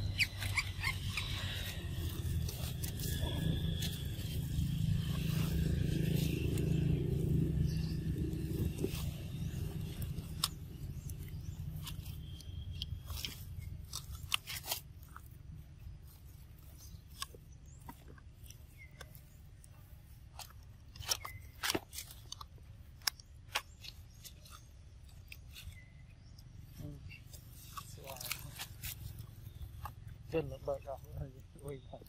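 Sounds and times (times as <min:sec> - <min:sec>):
low rumble: 0:00.0 - 0:17.2.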